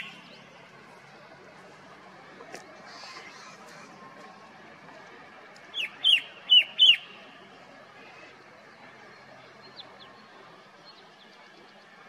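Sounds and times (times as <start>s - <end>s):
bird calling sharp downward notes: 0.0s - 0.4s, 5.7s - 7.3s.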